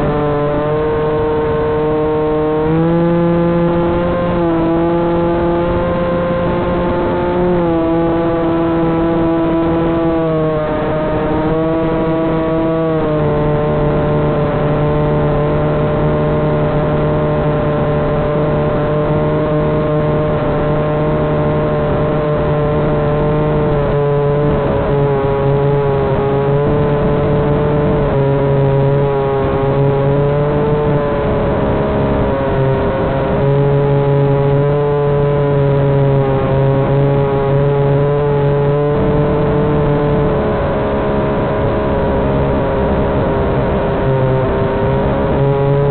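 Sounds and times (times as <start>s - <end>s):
quadcopter motors whining: 0.0s - 32.8s
wind on microphone: 0.0s - 45.9s.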